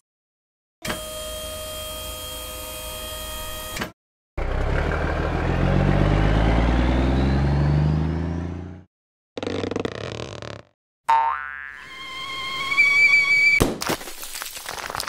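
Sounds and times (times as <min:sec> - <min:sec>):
truck engine pulling away: 0:04.4 - 0:08.9.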